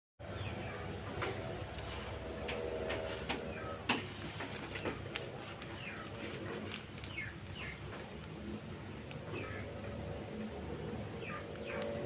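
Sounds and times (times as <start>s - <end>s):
birds chirping: 0.2s - 12.0s
plastic parcel rustling on table: 1.7s - 8.3s.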